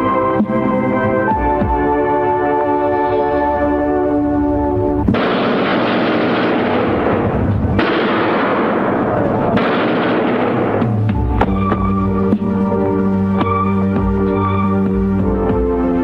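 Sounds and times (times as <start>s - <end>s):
automatic rifle firing bursts: 5.2s - 11.0s.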